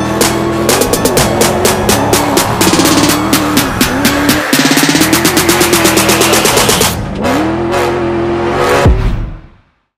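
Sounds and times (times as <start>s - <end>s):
music with driving beat: 0.0s - 7.1s.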